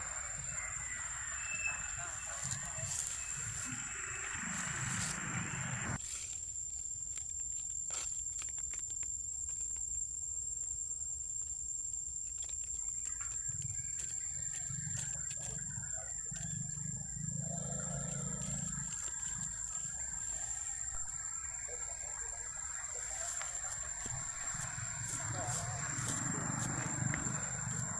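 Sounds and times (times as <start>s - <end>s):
monkey call: 0.0s - 6.0s
steady high-pitched tone: 0.0s - 6.0s, 18.8s - 27.9s.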